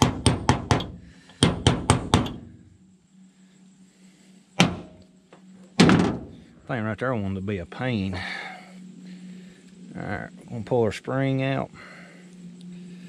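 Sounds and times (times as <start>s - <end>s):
hammer tapping on metal: 0.0s - 2.4s.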